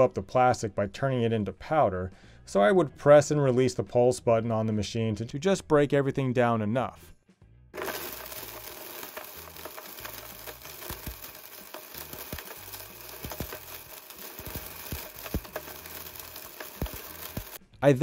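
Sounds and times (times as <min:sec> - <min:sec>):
blender rushing noise: 0:07.8 - 0:17.6
plastic pieces clicking on jar: 0:07.8 - 0:17.6.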